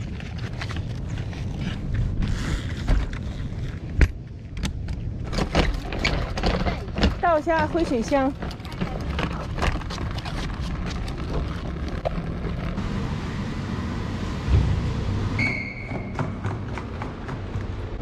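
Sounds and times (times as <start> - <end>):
toilet tank rolling on wheels: 5.2 - 18.0
thump: 14.5 - 14.8
brief high squeak: 15.4 - 16.2.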